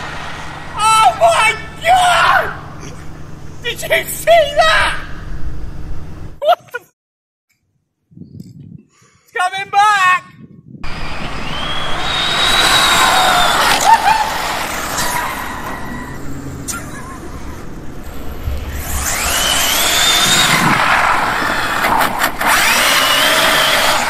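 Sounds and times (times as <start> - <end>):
rc car motor whine: 10.8 - 16.7, 17.4 - 24.0.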